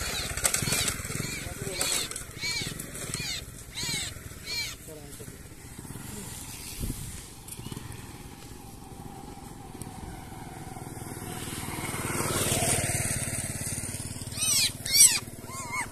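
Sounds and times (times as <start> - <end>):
high animal cries: 0.0 - 4.9, 14.3 - 15.9
motorcycle engine passing: 0.0 - 15.9.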